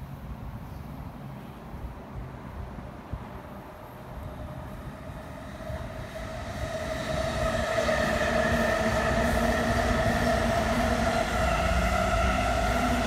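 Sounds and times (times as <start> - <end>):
steady train whine: 2.0 - 13.0
train wheels rumbling: 4.1 - 13.0.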